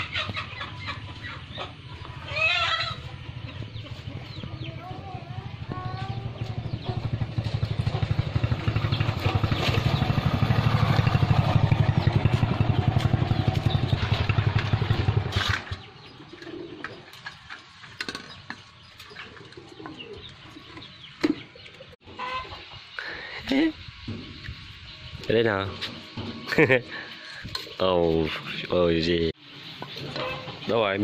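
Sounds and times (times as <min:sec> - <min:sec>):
birds chirping: 0:00.0 - 0:31.0
small engine running: 0:01.4 - 0:15.9.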